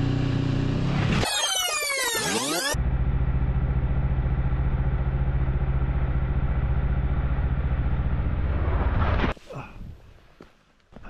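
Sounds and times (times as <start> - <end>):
motorcycle engine running: 0.0 - 1.1, 2.8 - 8.6.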